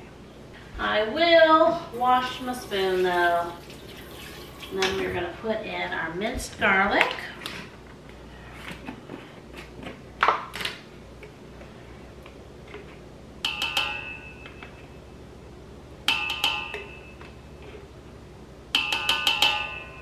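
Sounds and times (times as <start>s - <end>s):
bowl ringing: 2.0s - 5.2s, 18.8s - 20.0s.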